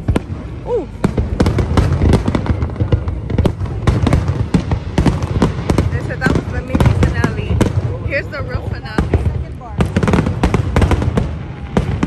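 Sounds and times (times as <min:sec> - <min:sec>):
fireworks bangs and crackles: 0:00.0 - 0:12.0
low rumble of booms: 0:00.0 - 0:12.0.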